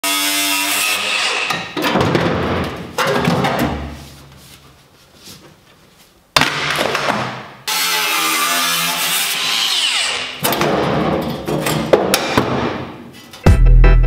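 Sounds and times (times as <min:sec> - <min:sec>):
angle grinder cutting metal: 0:00.0 - 0:01.8, 0:07.7 - 0:10.4.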